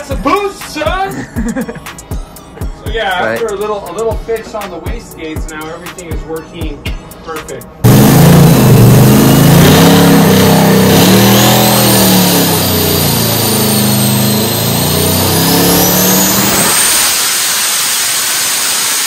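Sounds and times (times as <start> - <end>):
engine running hard: 7.8 - 19.0
high turbo whistle: 7.9 - 19.0.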